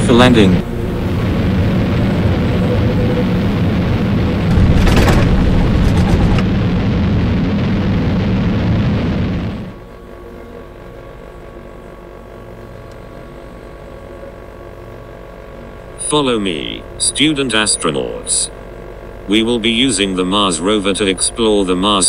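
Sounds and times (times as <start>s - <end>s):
cartoon rocket engine rumble: 0.0s - 9.8s
steady hum: 0.0s - 22.0s.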